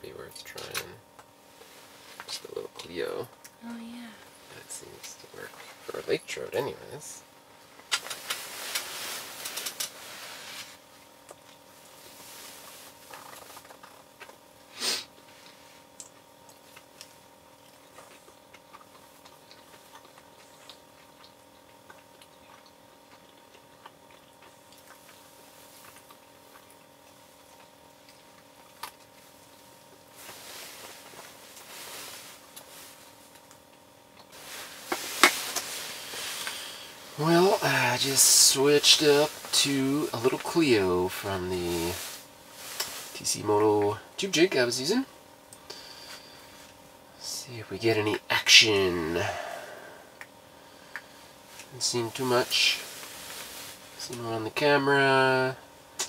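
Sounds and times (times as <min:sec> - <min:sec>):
faint steady hum: 0:00.0 - 0:56.0
soft rustling and handling: 0:24.9 - 0:44.0, 0:51.1 - 0:54.8.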